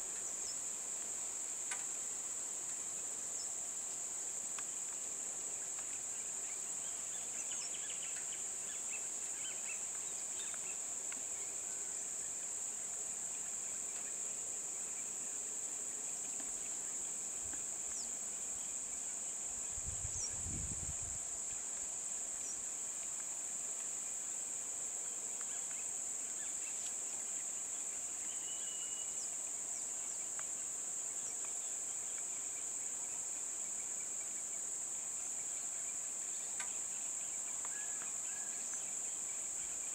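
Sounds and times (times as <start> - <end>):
faint bird chirps: 28.2 - 29.3.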